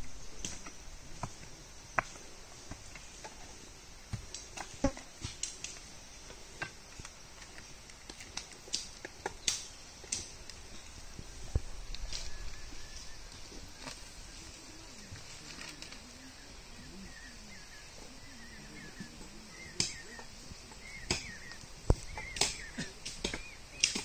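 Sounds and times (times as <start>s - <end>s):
faint high hiss: 0.0s - 24.0s
pickaxe knocking and scraping soil: 0.3s - 3.4s, 21.0s - 24.0s.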